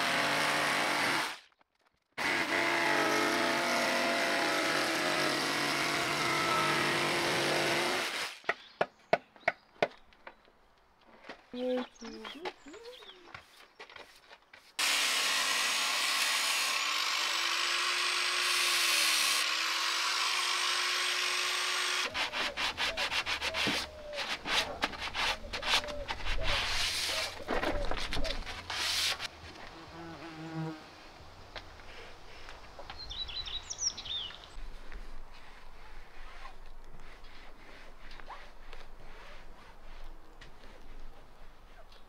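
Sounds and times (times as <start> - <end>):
power tool running: 2.2 - 8.4, 14.8 - 22.1
scraper and sandpaper rubbing wood: 21.8 - 29.3, 35.3 - 41.9.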